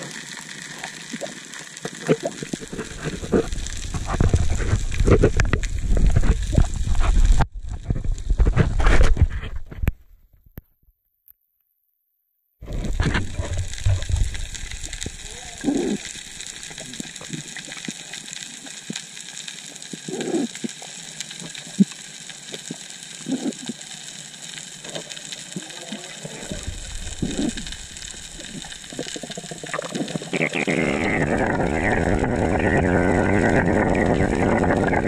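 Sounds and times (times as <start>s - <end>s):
muffled water swell: 12.6s - 18.7s, 26.1s - 30.2s
underwater hiss: 12.6s - 31.2s.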